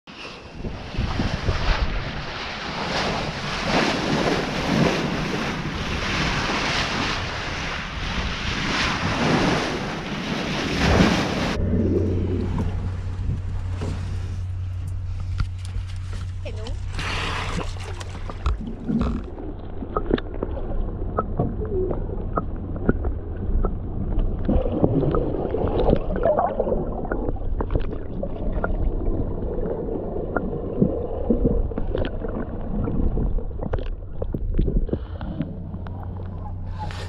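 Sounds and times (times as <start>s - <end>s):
underwater sloshing and gurgling: 0.1s - 37.0s
small underwater clicks: 17.5s - 26.5s, 30.3s - 37.0s.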